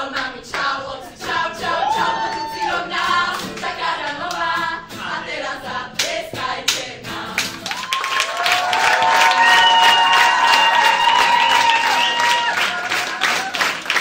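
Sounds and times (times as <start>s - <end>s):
group of voices singing: 0.0s - 7.8s
hand claps: 6.0s - 14.0s
applause: 7.4s - 14.0s.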